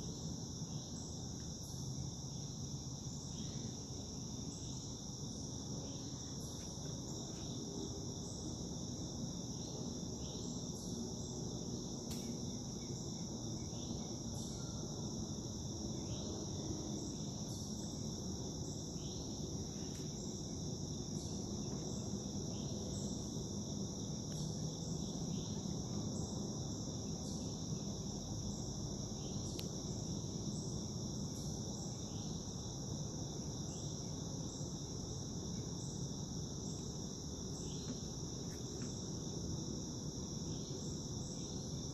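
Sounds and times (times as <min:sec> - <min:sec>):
high-pitched insect chorus: 0:00.0 - 0:41.9.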